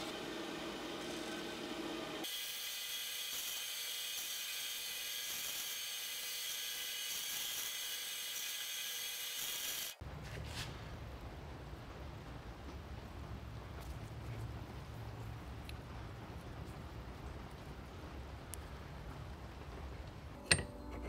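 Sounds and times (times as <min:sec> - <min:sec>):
bandsaw cutting metal: 0:00.0 - 0:10.0.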